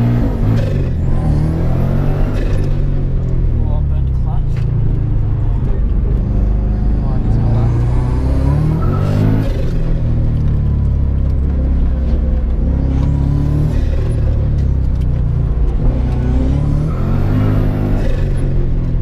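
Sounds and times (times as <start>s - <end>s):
race car engine under load: 0.0s - 19.0s.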